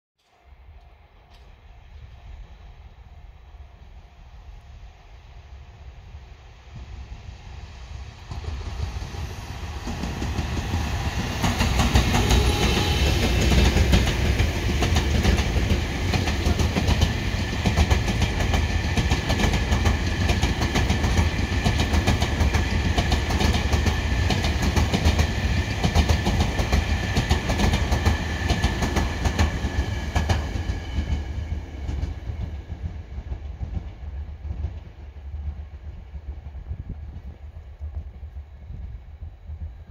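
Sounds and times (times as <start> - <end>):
train wheels clacking on rails: 8.1 - 36.4.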